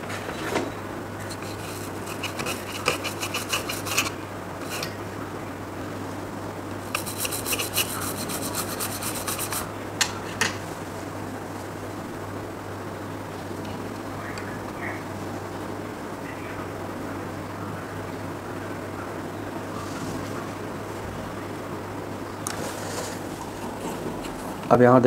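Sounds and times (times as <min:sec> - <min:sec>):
steady low hum: 0:00.0 - 0:25.0
rubbing or scraping strokes: 0:01.2 - 0:05.0, 0:06.9 - 0:09.7, 0:22.6 - 0:24.4.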